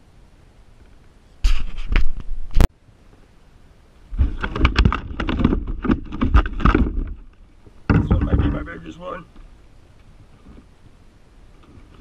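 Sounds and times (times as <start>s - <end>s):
fishing gear rattling on kayak hull: 4.1s - 9.5s.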